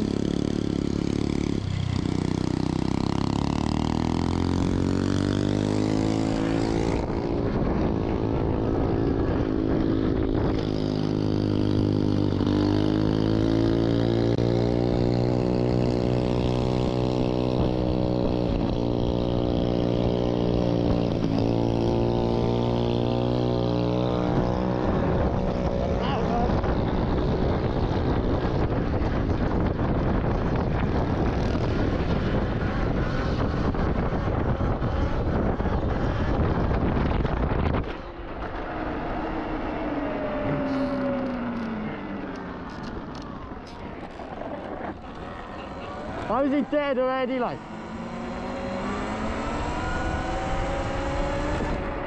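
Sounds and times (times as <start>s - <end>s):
small petrol engine running: 40.2s - 52.0s.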